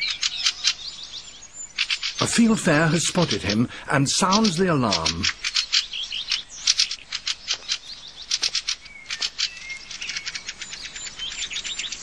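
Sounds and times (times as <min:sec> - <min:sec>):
bird alarm call chattering: 0:01.7 - 0:12.0.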